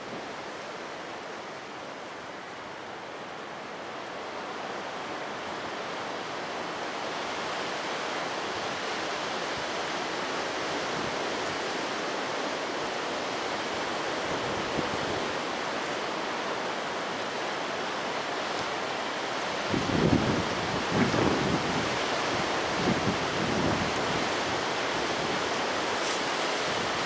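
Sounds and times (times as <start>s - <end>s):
wind rushing through branches: 0.0s - 27.0s.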